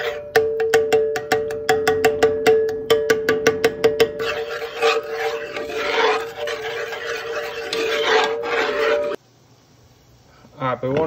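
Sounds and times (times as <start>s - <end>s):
spoon scraping and sloshing gravy: 4.1s - 9.2s.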